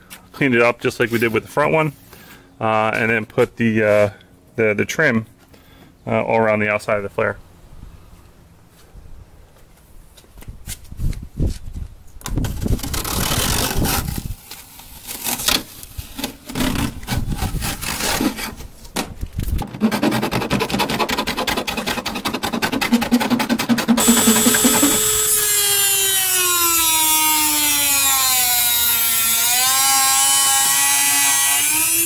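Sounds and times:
tape ripping off plastic: 12.2 - 19.9, 21.8 - 26.5
fast rasping rattle: 19.6 - 25.4.

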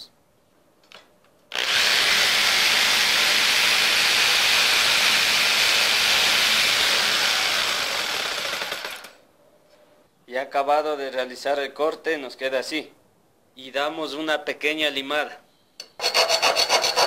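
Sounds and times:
jigsaw cutting steel: 1.5 - 9.2, 16.0 - 17.0.

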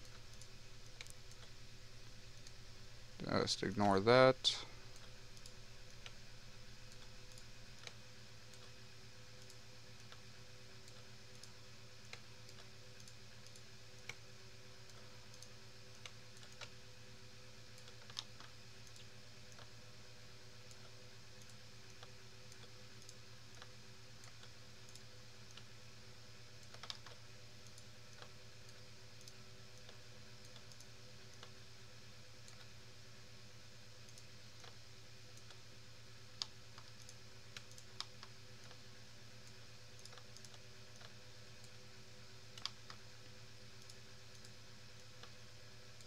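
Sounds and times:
low electrical hum: 0.0 - 46.0
computer mouse and keyboard clicks: 14.9 - 16.8, 17.7 - 19.7, 26.6 - 28.4, 29.2 - 31.5, 39.4 - 41.2, 42.5 - 43.0.

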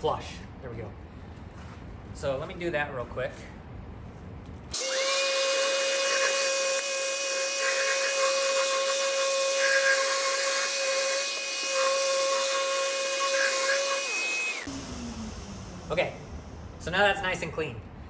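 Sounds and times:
orbital sander whine: 4.7 - 16.9.

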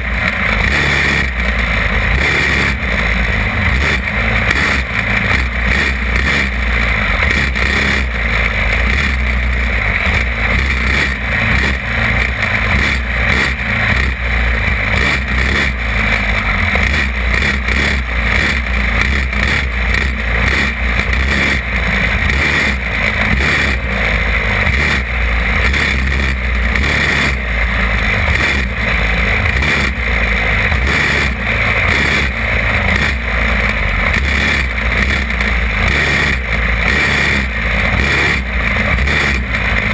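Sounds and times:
kart engine racing: 0.0 - 39.9.

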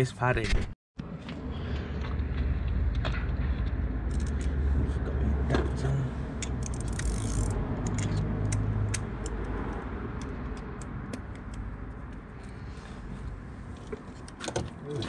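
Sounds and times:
metallic clicks of hex bit and ratchet: 4.1 - 4.6, 6.4 - 12.2.

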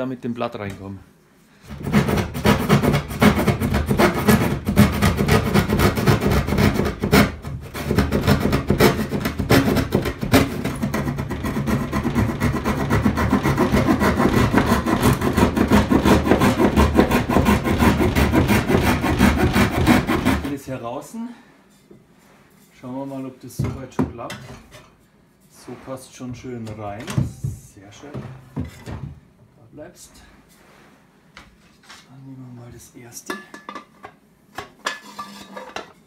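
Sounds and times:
saw cutting through board: 1.8 - 20.6.

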